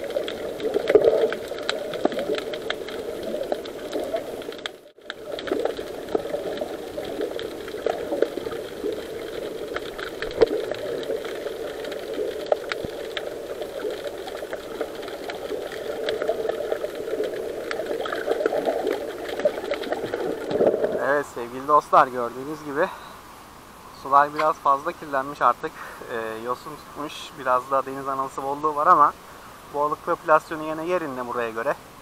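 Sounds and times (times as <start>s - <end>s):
faint underwater clicks: 0.0s - 21.9s, 24.1s - 27.1s
underwater churning murmur: 0.0s - 22.6s.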